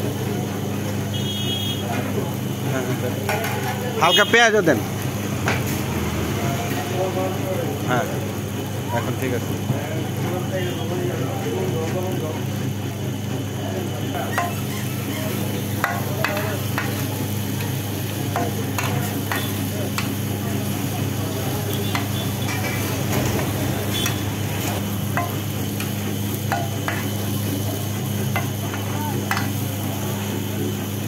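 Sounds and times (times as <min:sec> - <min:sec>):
food sizzling on a griddle: 0:00.0 - 0:31.0
metal spatula scraping a griddle: 0:14.2 - 0:20.2, 0:21.8 - 0:27.1.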